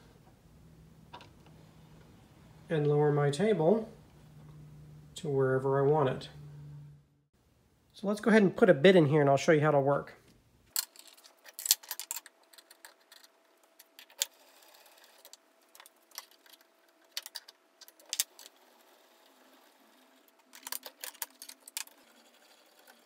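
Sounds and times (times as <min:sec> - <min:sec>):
faint steady hum: 0:00.0 - 0:23.0.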